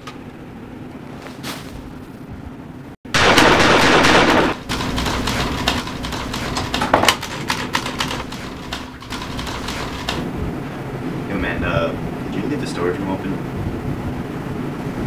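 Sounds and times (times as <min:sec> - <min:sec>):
loud burst of gunfire: 0:03.1 - 0:05.5
rapid crackle of shots: 0:03.1 - 0:10.2.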